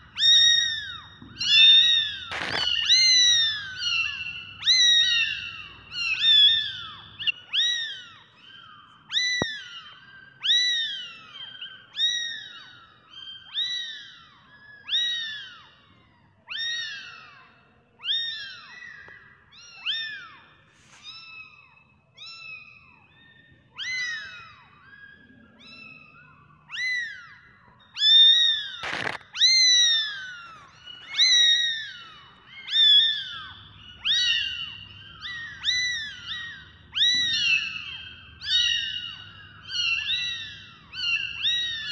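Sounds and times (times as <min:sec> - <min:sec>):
kittens meowing: 0:00.0 - 0:41.9
sharp click: 0:02.3 - 0:02.8, 0:28.8 - 0:29.3.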